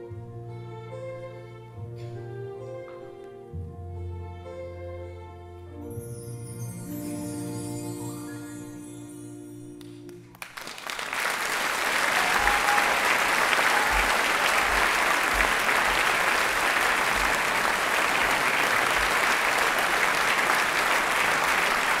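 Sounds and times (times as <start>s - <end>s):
audience applause: 10.2s - 22.0s.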